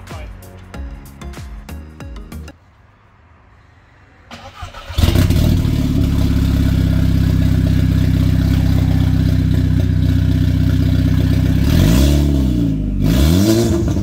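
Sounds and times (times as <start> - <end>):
car engine starting and idling: 4.2 - 14.0.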